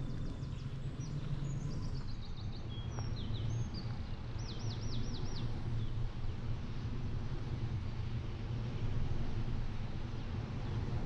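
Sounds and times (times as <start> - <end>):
songbirds singing: 0.0 - 6.0.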